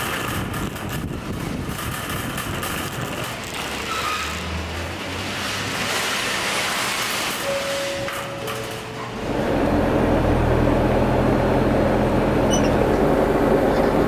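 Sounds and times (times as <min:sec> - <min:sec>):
shopping trolley rolling rattle: 0:00.0 - 0:10.1.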